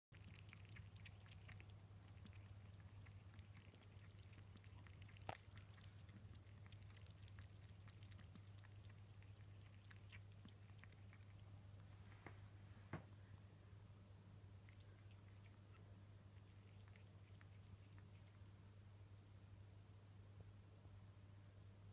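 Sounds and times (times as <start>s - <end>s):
kitten lapping water: 0.1s - 12.3s, 14.6s - 18.5s
steady low hum: 0.1s - 21.9s.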